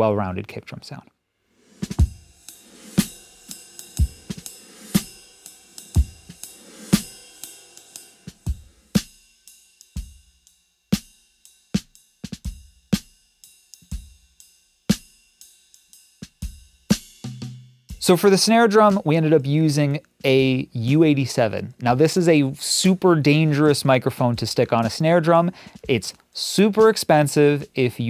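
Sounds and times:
cymbal strokes: 1.5 - 18.2
hi-hat: 1.6 - 18.2
snare drum: 1.8 - 3.2, 4.0 - 5.1, 8.5 - 9.2
kick drum thumps: 2.0 - 2.3.

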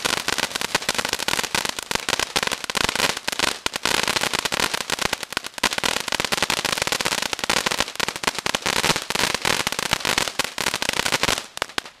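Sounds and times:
firework spraying sparks with hiss: 0.0 - 12.0.

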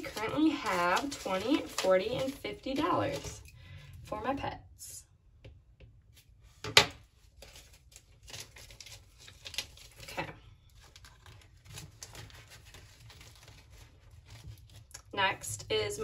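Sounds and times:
banknotes rustling and crinkling: 0.0 - 3.8, 6.5 - 14.9.

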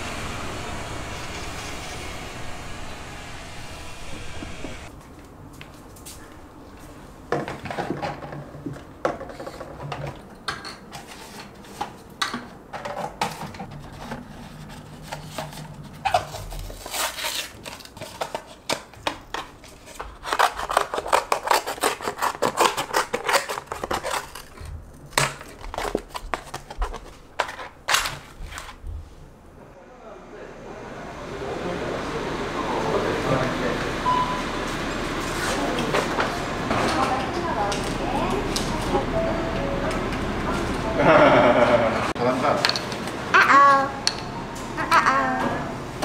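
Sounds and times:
carton board crinkling: 13.7 - 28.8.

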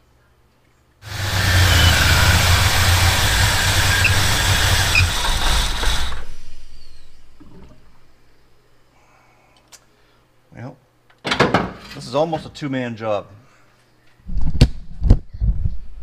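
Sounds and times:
car engine running loudly: 1.0 - 5.9.

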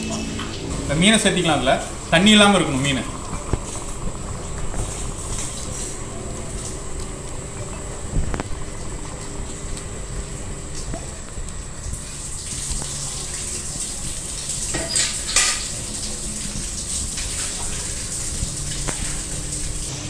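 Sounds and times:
steady low hum: 0.0 - 14.7.

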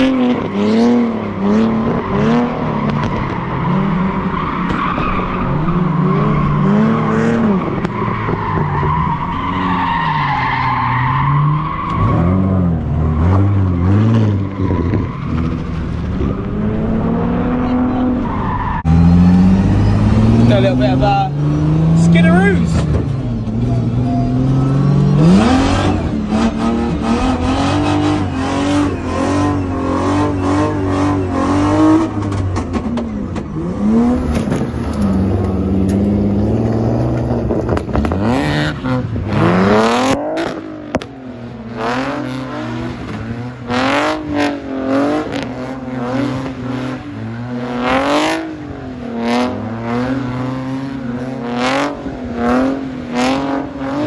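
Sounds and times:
car engine revving: 0.0 - 54.0.

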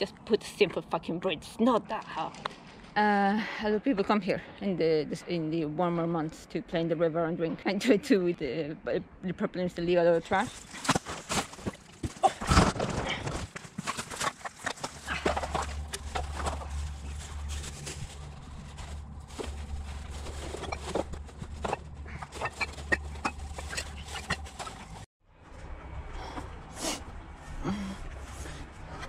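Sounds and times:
steady low rumble: 14.9 - 29.0
footsteps in dry grass: 15.0 - 25.0.

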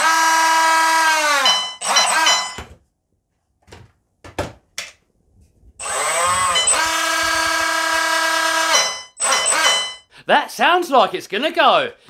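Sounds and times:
electric motor whining: 0.0 - 2.6, 5.8 - 10.0.

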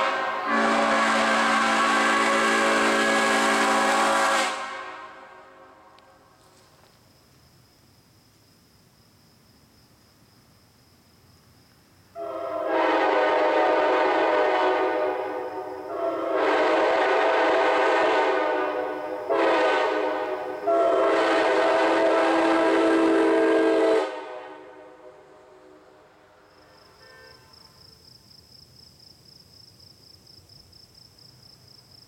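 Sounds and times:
horn echo: 0.0 - 6.0, 12.2 - 25.8
locomotive air horn blasts: 0.0 - 6.0, 12.2 - 26.3, 27.0 - 27.6.

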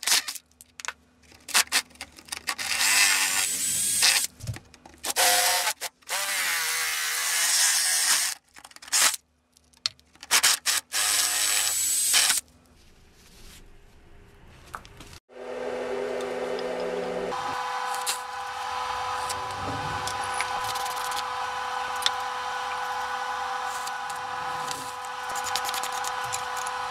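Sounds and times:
rotary tool grinding metal: 16.6 - 26.9.

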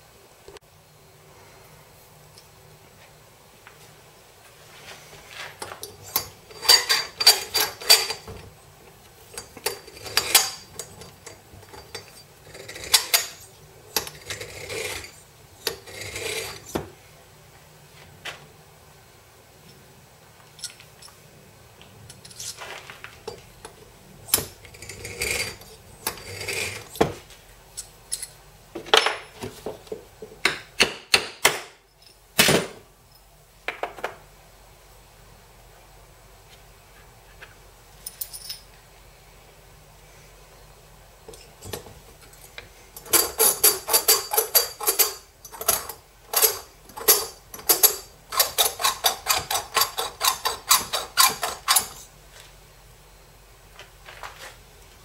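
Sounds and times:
metal tools clinking on workbench: 5.6 - 8.5, 9.4 - 16.7, 38.0 - 38.7, 41.3 - 52.0.

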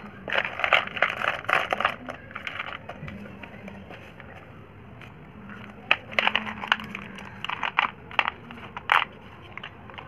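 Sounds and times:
slate pencils clattering together: 0.2 - 3.2, 5.5 - 10.0.

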